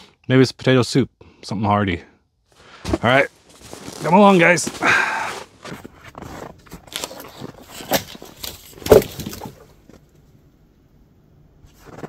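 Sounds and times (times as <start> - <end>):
footsteps crunching in snow: 2.5 - 8.8.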